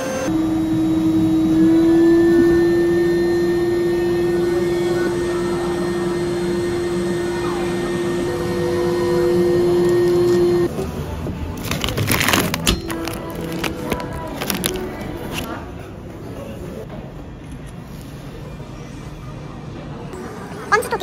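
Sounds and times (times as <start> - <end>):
vacuum pump humming: 0.0 - 10.8.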